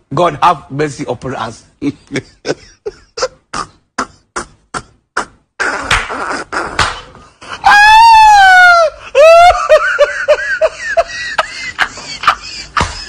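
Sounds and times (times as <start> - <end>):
man laughing hard: 1.9 - 4.4, 7.4 - 13.0.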